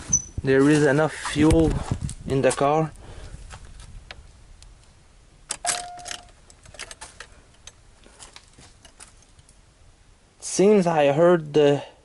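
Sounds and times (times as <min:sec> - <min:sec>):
ignition key clicking and rattling: 0:05.5 - 0:07.8.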